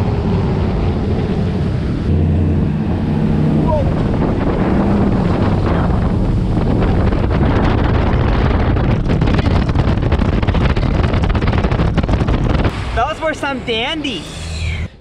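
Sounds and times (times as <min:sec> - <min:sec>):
wind buffeting microphone: 0:00.0 - 0:13.4
outboard motor running: 0:02.1 - 0:12.7.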